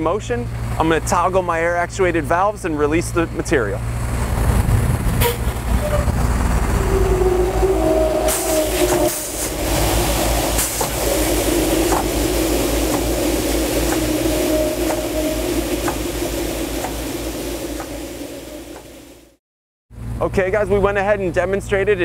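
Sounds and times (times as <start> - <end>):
truck engine and pump rumbling: 0.0 - 19.4
spray valve hissing: 8.3 - 19.3.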